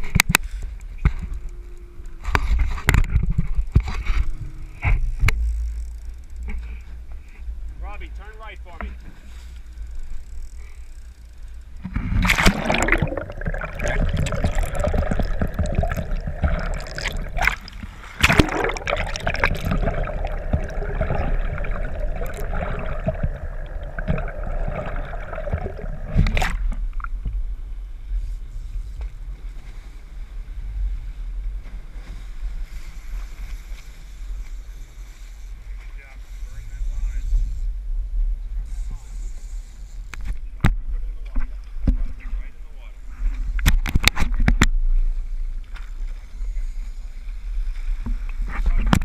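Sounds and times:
boat low rumble: 3.4s - 34.7s
water splashes: 11.9s - 27.3s
water gurgling underwater: 12.0s - 27.2s.

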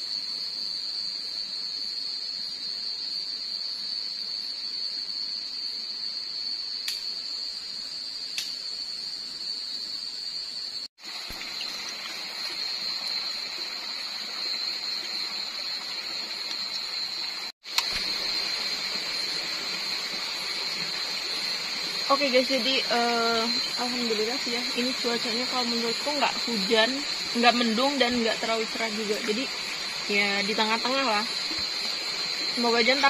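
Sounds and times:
crickets chirring: 0.0s - 33.0s
stream rushing: 11.0s - 33.0s.

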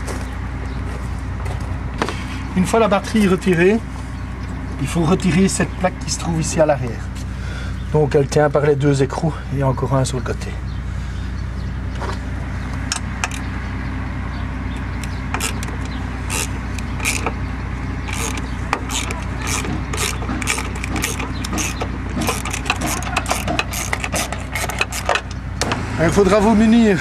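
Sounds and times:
steady low hum: 0.0s - 27.0s
hand tools clicking on metal: 14.8s - 17.4s, 18.1s - 25.4s.

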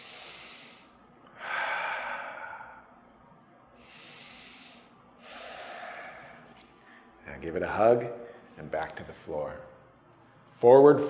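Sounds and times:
man breathing deeply: 0.0s - 3.1s, 3.8s - 7.2s.

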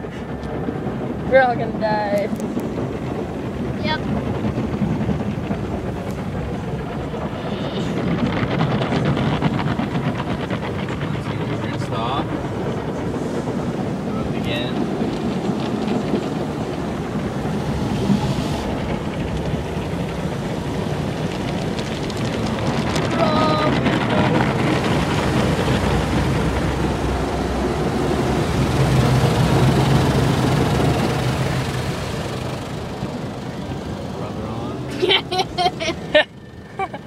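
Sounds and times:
car wash brushes scrubbing: 13.1s - 36.2s
water spray rushing: 13.2s - 34.8s.

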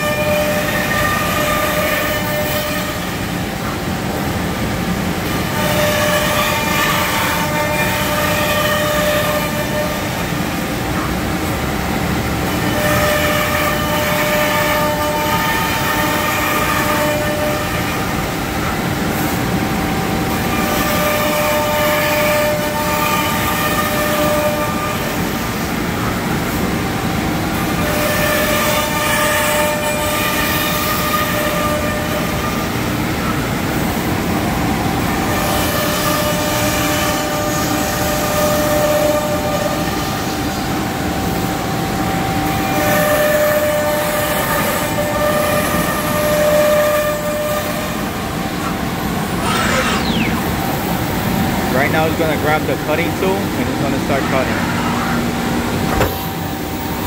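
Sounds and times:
whining tone: 49.3s - 53.4s.

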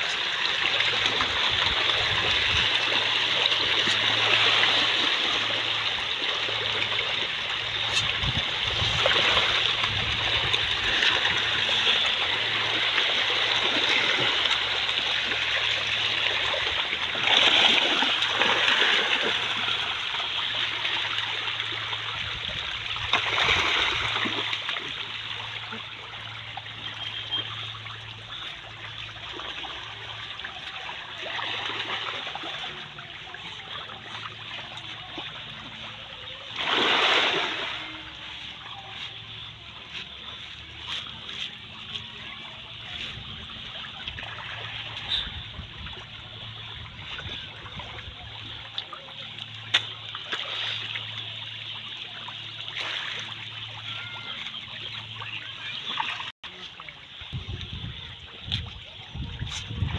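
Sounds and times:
fish thrashing water: 7.9s - 22.1s, 23.0s - 25.5s, 36.5s - 38.2s.

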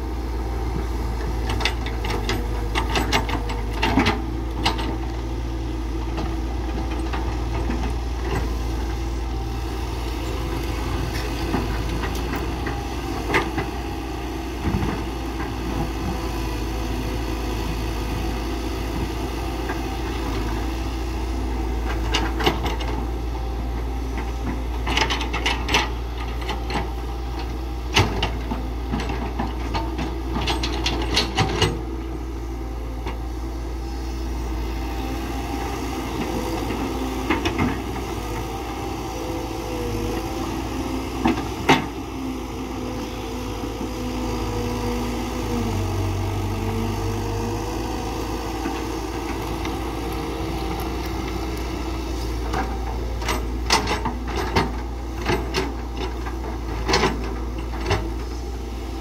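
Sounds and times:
excavator diesel engine running: 0.0s - 59.0s.

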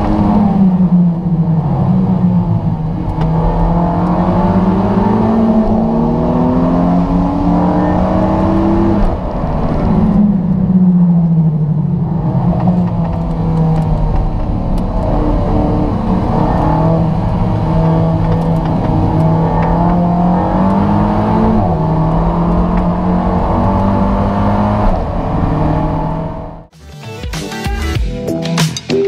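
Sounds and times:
car engine running hard: 0.0s - 26.7s.

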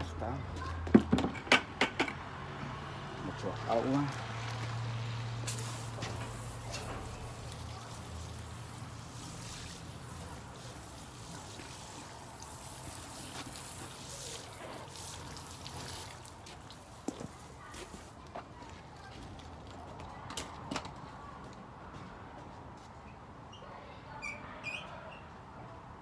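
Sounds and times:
water spraying from a hose: 3.4s - 18.2s.

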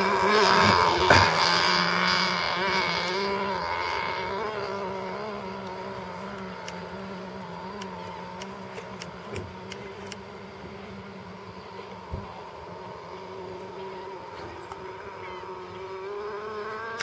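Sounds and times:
model boat engine buzzing: 0.0s - 17.0s
faint ticks: 5.6s - 7.0s, 7.7s - 10.3s.

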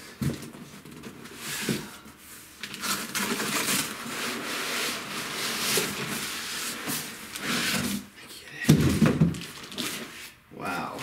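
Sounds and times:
foam scraping against cardboard box: 3.5s - 8.0s.

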